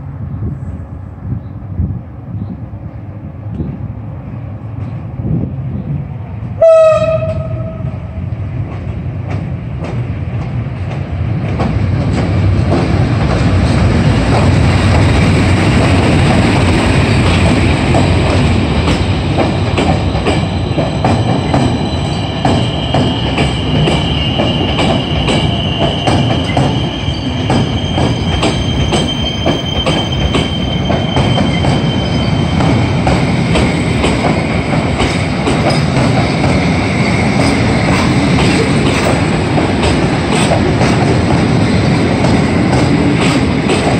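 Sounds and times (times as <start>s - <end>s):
train passing rumble: 0.0s - 43.9s
train horn blast: 6.6s - 8.0s
wheels clacking over rail joints: 8.6s - 43.9s.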